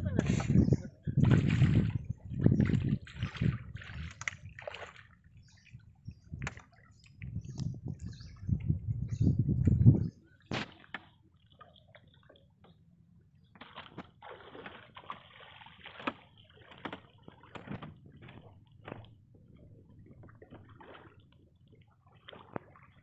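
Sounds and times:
bare feet squelching in mud: 1.2s - 5.2s, 13.6s - 19.1s.

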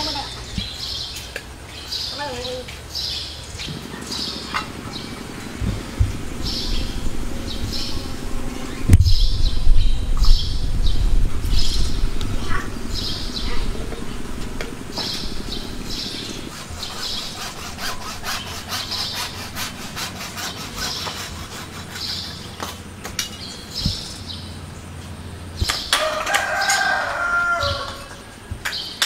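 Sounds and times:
hacksaw cutting plastic pipe: 16.5s - 23.3s.

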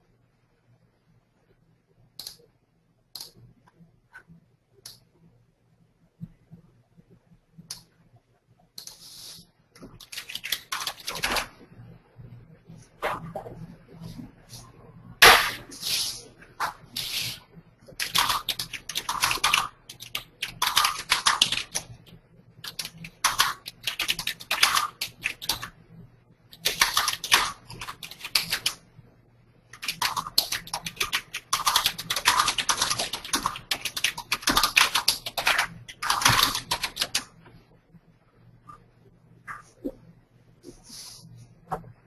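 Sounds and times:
faint steady hum: 0.0s - 42.0s
typing on computer keyboard: 9.8s - 11.5s, 17.9s - 25.8s, 26.5s - 28.8s, 29.7s - 37.4s.

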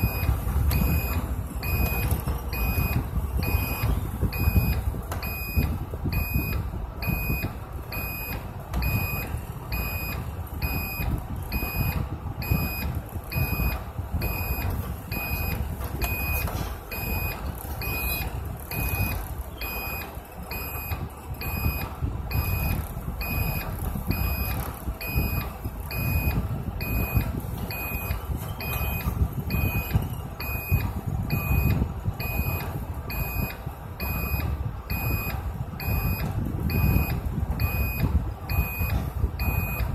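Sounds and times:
bus engine and road noise: 0.0s - 39.9s
high electronic warning beep: 0.0s - 39.9s.

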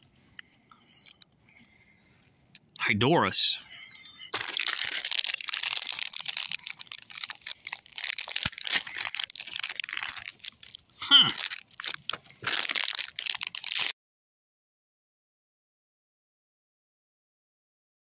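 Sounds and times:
popcorn crunching and rustling: 0.0s - 2.9s, 3.9s - 14.0s.

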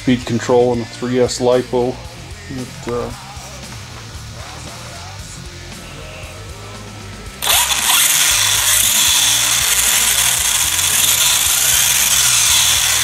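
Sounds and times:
rc car motor whirring: 7.4s - 13.0s.

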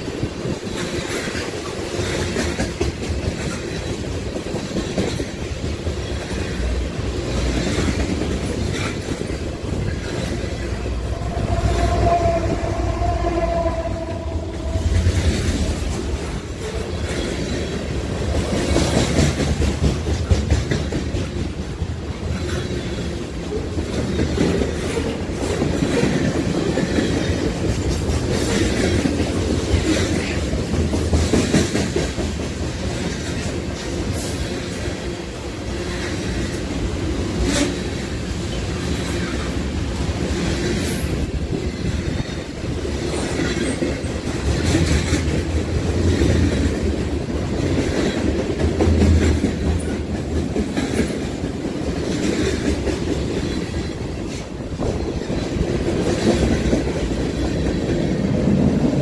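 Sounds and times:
train clanks: 0.0s - 59.0s
train wheels rumbling on rail: 0.0s - 59.0s.

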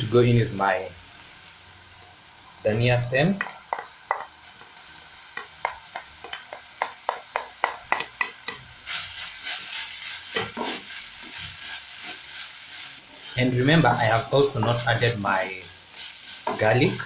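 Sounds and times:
minced meat sizzling: 0.0s - 17.0s
wooden spatula knocking on plate: 3.4s - 4.3s, 5.4s - 8.6s.

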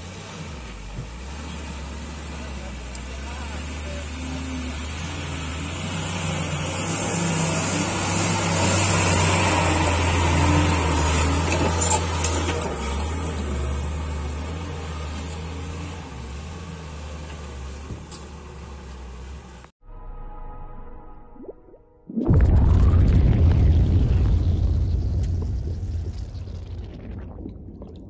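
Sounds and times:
lorry diesel engine droning: 0.0s - 20.7s.

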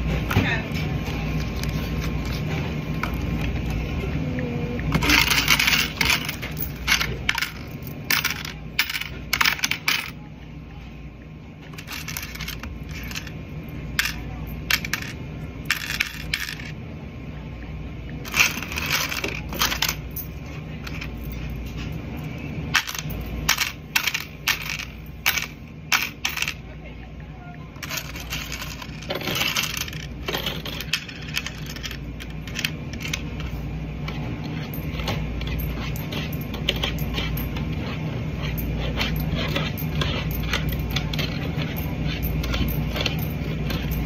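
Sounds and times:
coins clinking and rattling: 4.9s - 10.2s, 11.7s - 16.8s, 18.2s - 26.6s, 27.8s - 44.0s.

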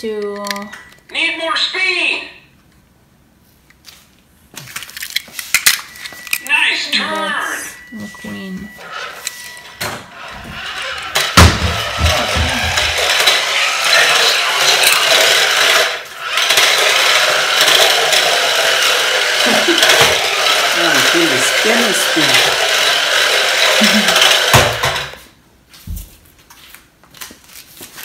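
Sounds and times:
toy car motor whirring: 8.2s - 25.2s.

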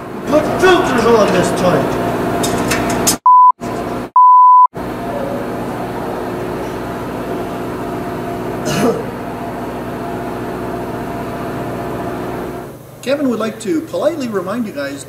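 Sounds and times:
censor bleep tone: 3.3s - 3.6s, 4.2s - 4.7s.

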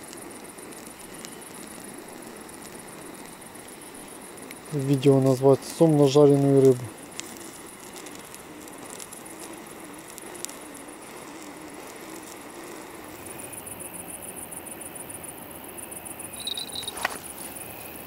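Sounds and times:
crickets chirping: 0.0s - 18.0s
sharp loud chirp: 16.3s - 17.0s.

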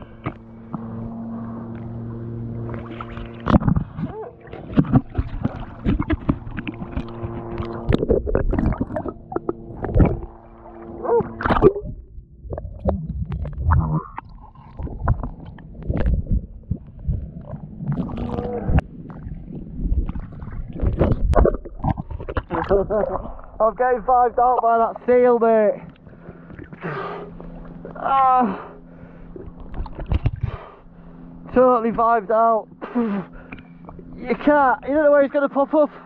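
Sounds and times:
steady low hum: 0.0s - 36.0s
water sloshing and gurgling: 0.0s - 36.0s.

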